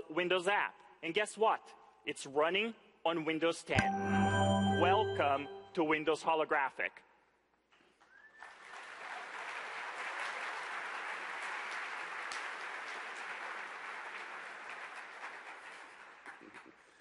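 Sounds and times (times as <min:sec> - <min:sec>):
audience applauding: 0:08.2 - 0:17.0.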